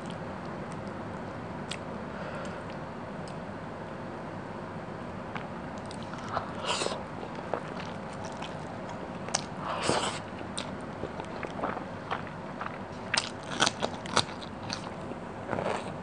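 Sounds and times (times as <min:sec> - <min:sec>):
wet chewing and mouth clicks: 0:05.4 - 0:16.0.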